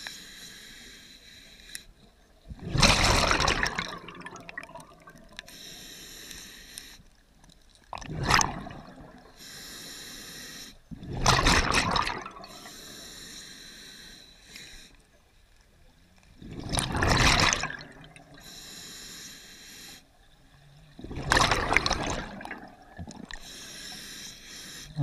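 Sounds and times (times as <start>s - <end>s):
hissing regulator inhalations: 0.0s - 2.0s, 5.4s - 7.2s, 9.3s - 10.8s, 12.5s - 15.1s, 18.4s - 20.1s, 23.3s - 25.0s
loud bubbling exhalations: 21.0s - 23.3s.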